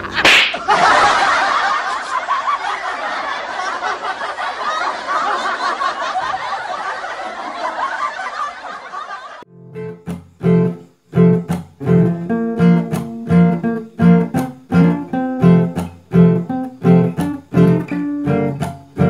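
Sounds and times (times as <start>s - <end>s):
laugh track: 0.0s - 9.5s.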